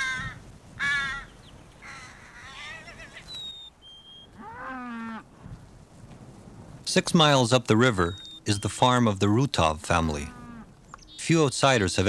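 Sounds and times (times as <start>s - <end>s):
crow cawing: 0.0s - 3.2s.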